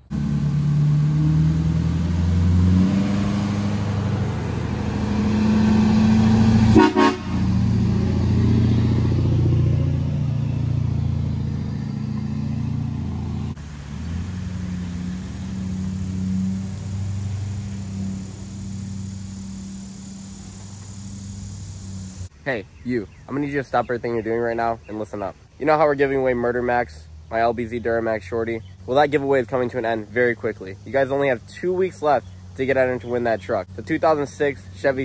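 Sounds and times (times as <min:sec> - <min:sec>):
pickup truck engine pulling away: 0:00.0 - 0:22.3
vehicle horn toot: 0:06.6 - 0:07.7.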